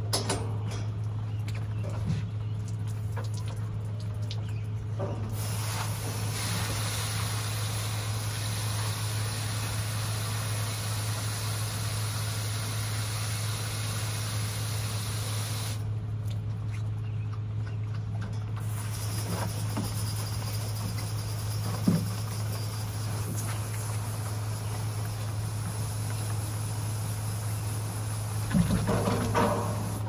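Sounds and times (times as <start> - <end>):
steady low hum: 0.0 - 30.0
hose nozzle spraying water: 5.3 - 15.8.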